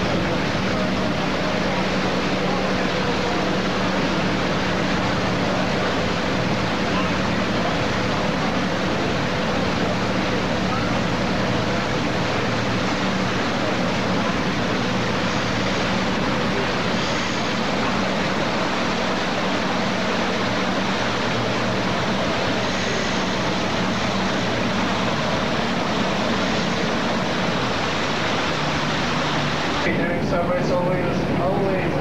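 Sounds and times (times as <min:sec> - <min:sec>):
boat engine drone: 0:00.0 - 0:32.0
water rushing: 0:00.0 - 0:32.0.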